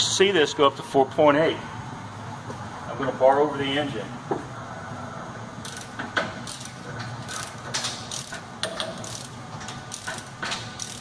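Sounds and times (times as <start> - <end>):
ratchet wrench clicking: 5.6 - 11.0.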